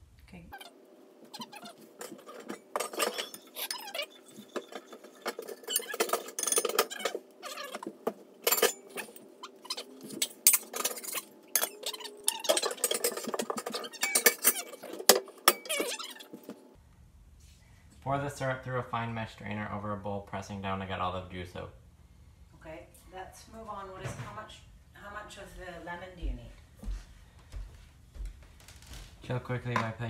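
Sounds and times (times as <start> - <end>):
faint low hum: 0.0 - 30.0
cookware clattering: 1.4 - 16.5.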